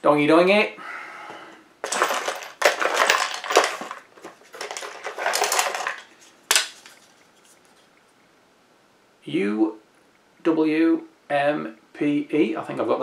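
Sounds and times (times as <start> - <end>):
packaging crinkling and rustling: 1.8 - 7.9.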